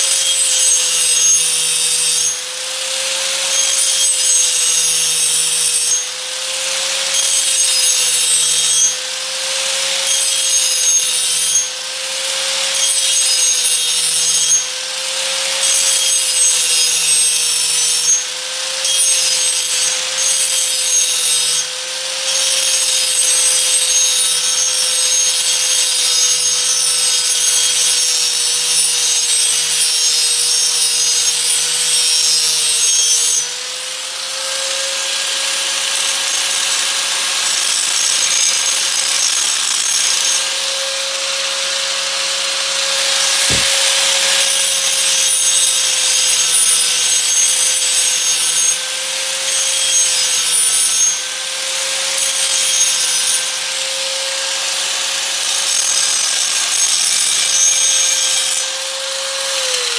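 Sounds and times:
grinder motor humming: 20.9 - 55.4
abrasive grinding metal: 34.5 - 51.2.

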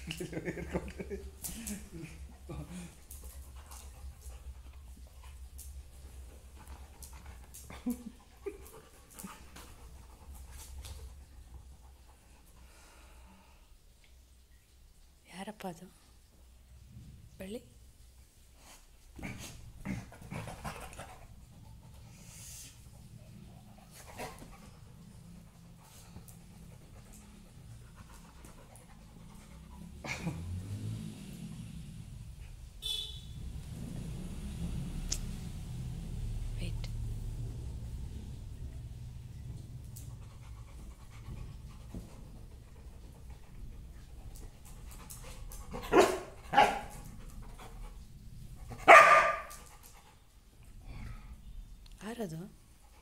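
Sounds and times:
dog panting: 20.1 - 30.6, 39.9 - 50.4
dog barking: 45.9 - 46.9, 48.8 - 49.5.

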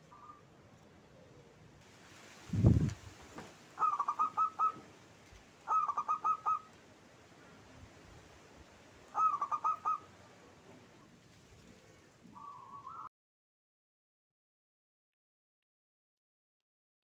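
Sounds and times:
dove cooing: 0.0 - 0.4, 1.0 - 1.7, 3.8 - 4.9, 5.6 - 6.8, 9.1 - 10.8, 11.6 - 13.1.

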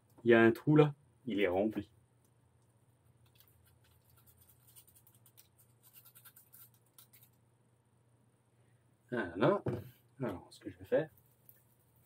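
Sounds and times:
low electrical hum: 0.0 - 12.0
faint scratching and ticks: 2.6 - 7.4, 10.9 - 12.0.

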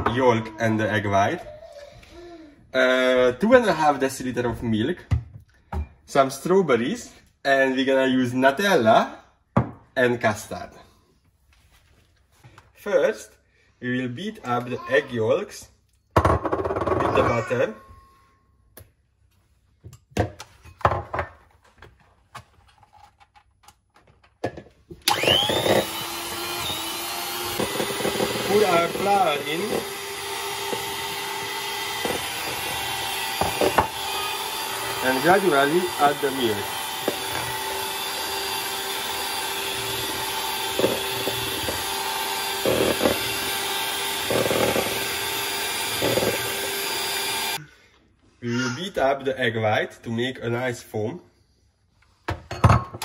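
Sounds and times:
electric hand mixer whining: 25.0 - 47.6.

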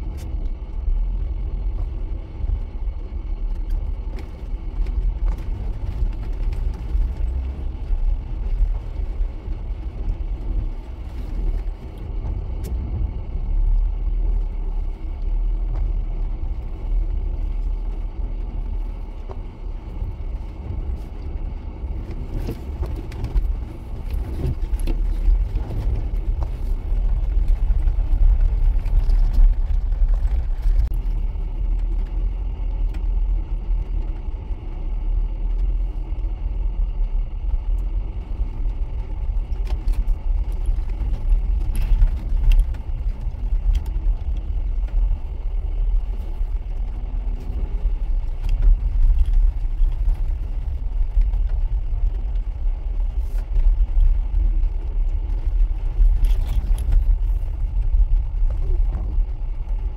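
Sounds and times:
engine and tyre rumble on gravel: 0.0 - 59.9
clicks and rattles in cabin: 14.4 - 34.4, 36.8 - 59.9.

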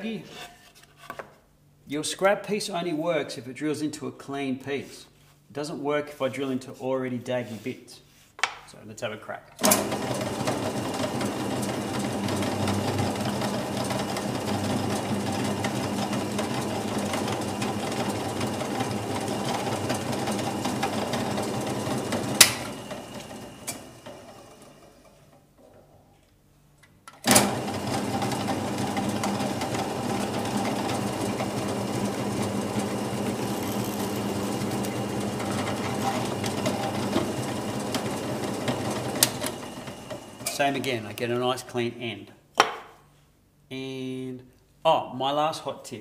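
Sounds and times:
drill press motor humming: 9.6 - 25.2, 27.3 - 40.5.

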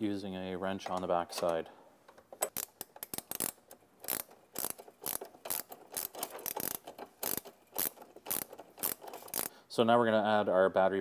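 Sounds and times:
ratchet wrench clicking: 2.4 - 9.5.

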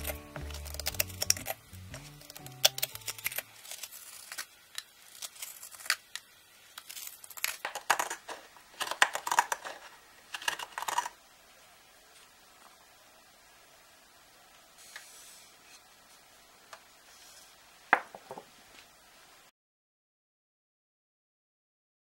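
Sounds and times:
knife scraping wood: 6.8 - 11.2.

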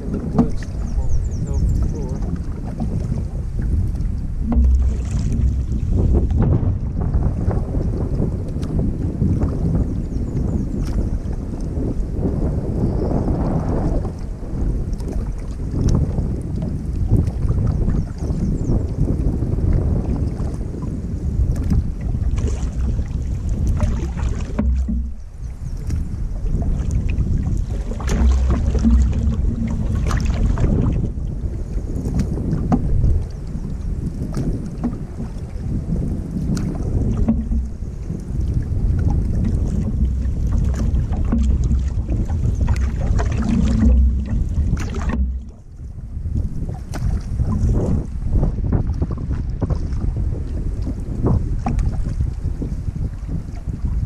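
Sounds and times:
water splashing against hull: 0.0 - 54.0
wind buffeting microphone: 0.0 - 54.0.

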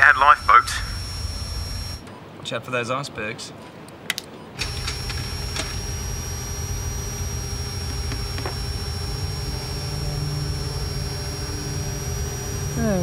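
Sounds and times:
thin high whine: 0.0 - 2.0, 4.6 - 13.0
aircraft engines droning: 0.0 - 2.3, 3.9 - 13.0.

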